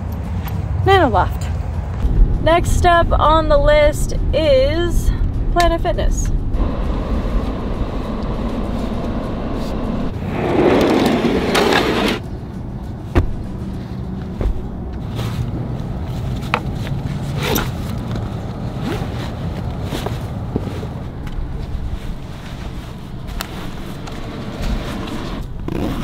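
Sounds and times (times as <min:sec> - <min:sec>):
low steady hum: 0:00.8 - 0:10.2
buckle and zipper clicks: 0:16.4 - 0:21.4, 0:23.4 - 0:26.0
fabric bag rustling: 0:17.1 - 0:26.0.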